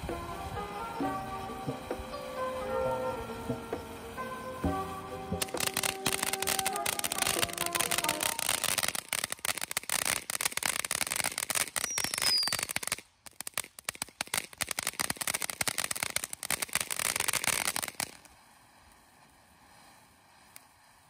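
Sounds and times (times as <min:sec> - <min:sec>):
firework fountain crackling: 0:00.0 - 0:21.0
short falling whistle: 0:11.8 - 0:12.7.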